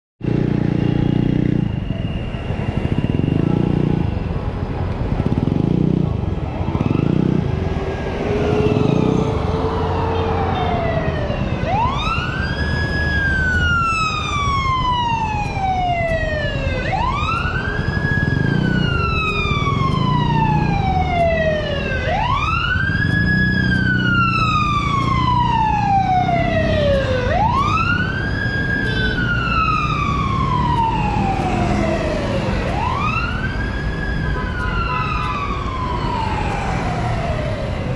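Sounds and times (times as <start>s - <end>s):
road traffic: 0.2s - 37.9s
scooter and car engines passing: 0.2s - 37.9s
ambulance siren wailing: 5.2s - 37.9s.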